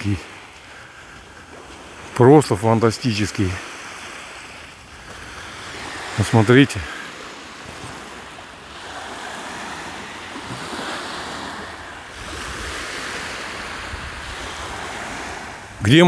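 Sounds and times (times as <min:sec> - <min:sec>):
sea waves breaking on shore: 0:00.0 - 0:16.0
wind on microphone: 0:07.5 - 0:16.0.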